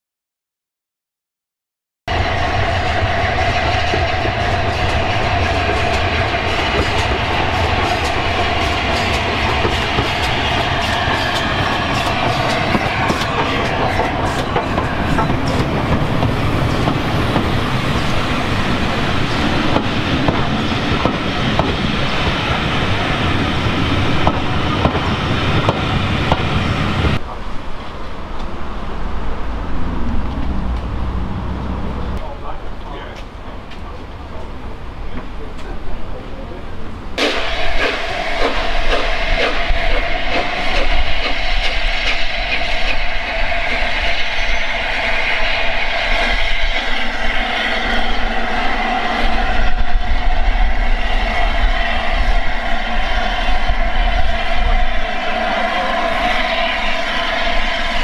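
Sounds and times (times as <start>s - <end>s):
steam train running past: 2.1s - 58.0s
low rumble: 28.6s - 32.6s.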